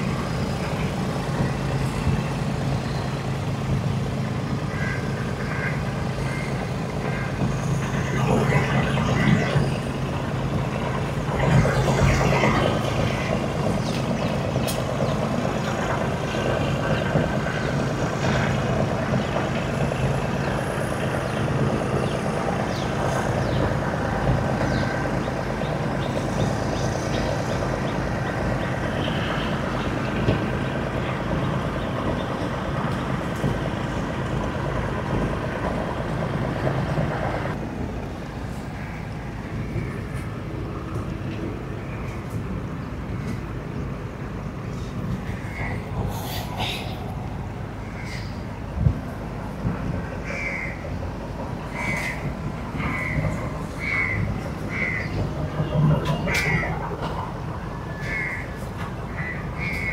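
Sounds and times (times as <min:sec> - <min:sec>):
wash of noise: 0:00.0 - 0:41.2
engine running steadily: 0:00.0 - 0:59.9.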